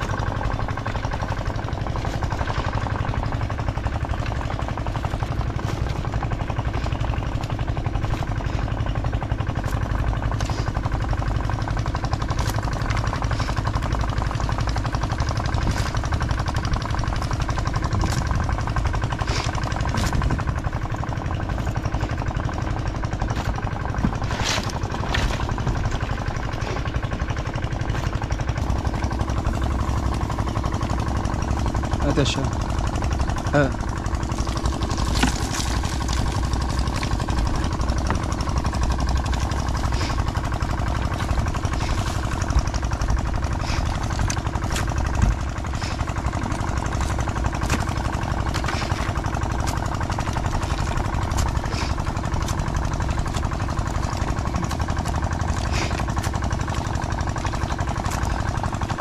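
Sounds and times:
engine humming: 0:00.0 - 0:59.0
crawfish clicking in plastic crate: 0:34.1 - 0:39.8, 0:40.6 - 0:59.0.

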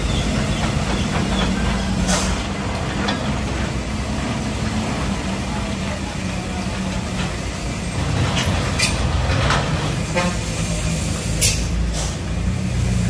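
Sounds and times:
diesel truck engine under load: 0:00.0 - 0:13.0
short air hisses: 0:10.4 - 0:12.3.

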